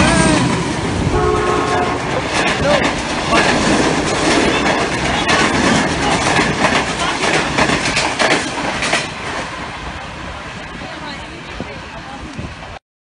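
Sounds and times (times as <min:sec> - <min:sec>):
loud rushing noise: 0:00.0 - 0:12.8
train wheels clattering over rail joints: 0:01.6 - 0:09.6.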